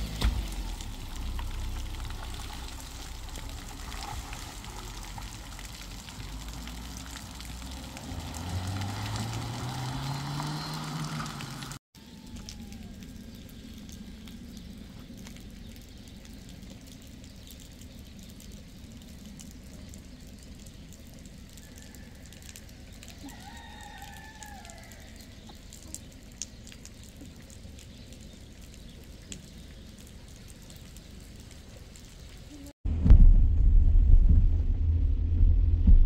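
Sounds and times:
low street rumble: 0.0s - 36.0s
rooster crowing: 21.5s - 25.3s.

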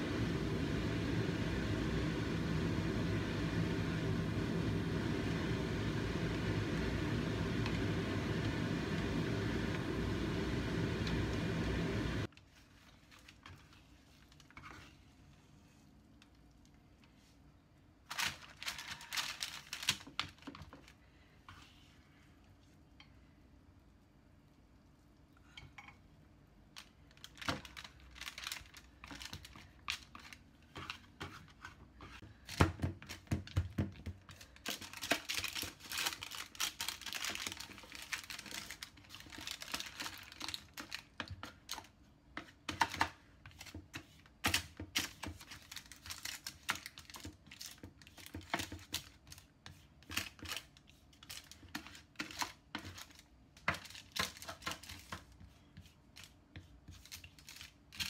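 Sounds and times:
baking paper crinkling: 12.2s - 16.0s, 18.0s - 21.1s, 26.7s - 33.3s, 34.0s - 58.0s
spatula tapping and scraping: 29.1s - 35.3s, 40.6s - 45.6s, 46.6s - 57.4s.

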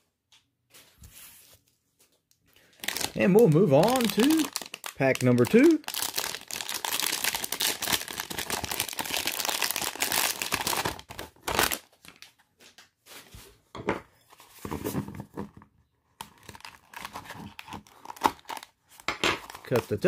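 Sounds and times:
plastic wrapper rustling: 2.0s - 13.2s, 16.2s - 20.0s
plastic bag crinkling and tearing: 2.6s - 12.3s, 16.2s - 18.7s.

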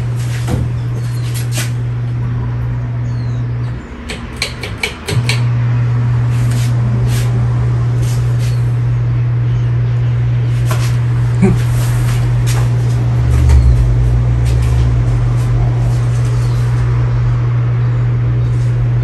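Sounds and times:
ceiling fan electrical hum: 0.0s - 19.0s
sharp clicks: 4.1s - 5.5s.

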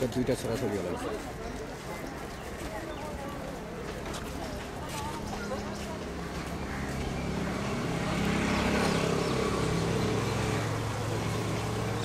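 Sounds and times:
vehicle engine humming: 5.5s - 12.0s.

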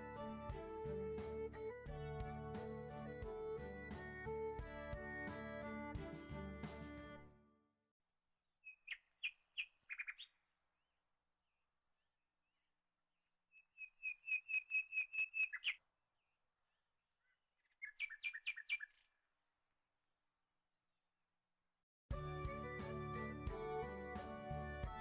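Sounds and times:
bird chirping: 8.6s - 10.4s, 13.5s - 15.9s, 17.2s - 19.2s.

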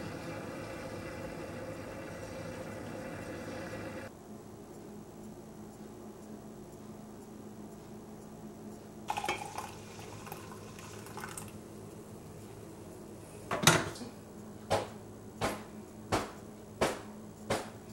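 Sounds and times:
faint steady hum: 0.0s - 17.9s
sharp knocks: 14.7s - 17.8s.

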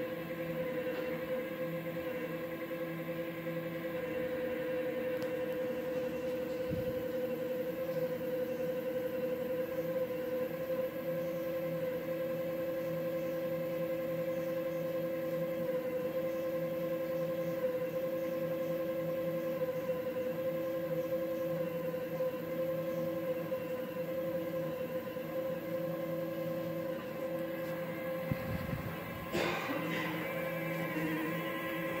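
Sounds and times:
stepper motors whining: 20.5s - 32.0s.

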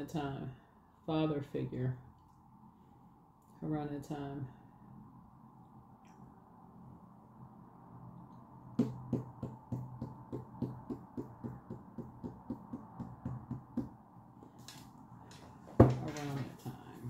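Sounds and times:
fingertips tapping on tabletop: 8.8s - 13.9s.

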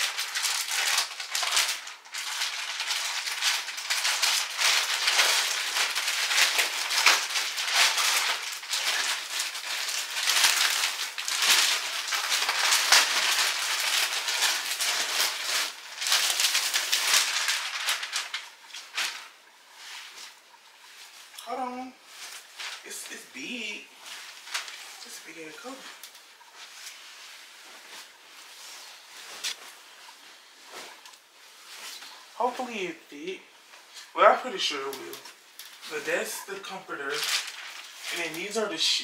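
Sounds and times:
packaging and bedding rustling: 0.0s - 21.4s, 22.0s - 32.7s, 34.7s - 38.8s.

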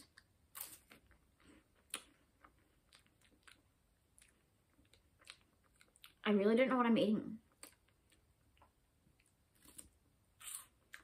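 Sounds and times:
crunching and chewing wafer: 7.5s - 11.0s.

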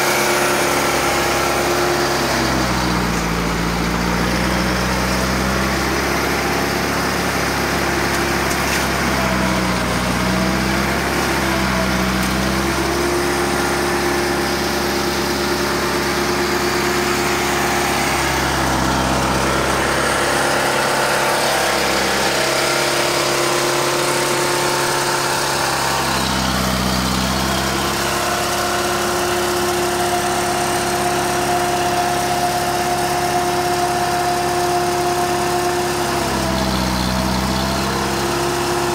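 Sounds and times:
tractor diesel engine running: 0.0s - 38.9s.

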